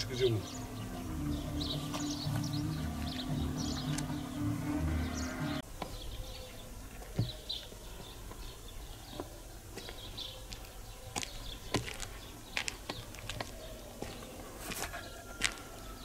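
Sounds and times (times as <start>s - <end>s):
birds chirping faintly: 0.0s - 16.0s
footsteps on concrete: 1.2s - 4.3s, 7.0s - 16.0s.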